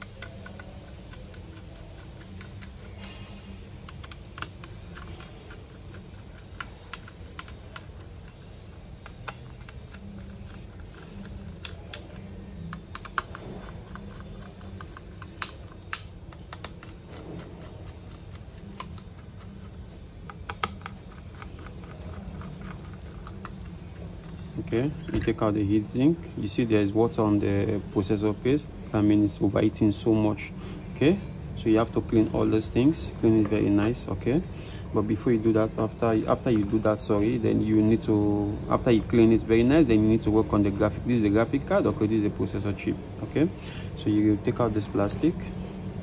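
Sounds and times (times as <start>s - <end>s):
steady low hum: 0.0s - 46.0s.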